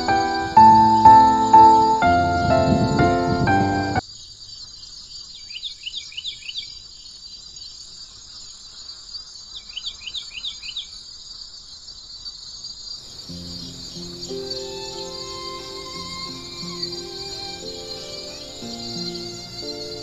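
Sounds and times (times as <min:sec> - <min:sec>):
music: 0:00.0 - 0:04.0, 0:13.3 - 0:20.0
high insect drone: 0:00.0 - 0:04.8, 0:11.2 - 0:20.0
bird whistling song: 0:13.4 - 0:20.0.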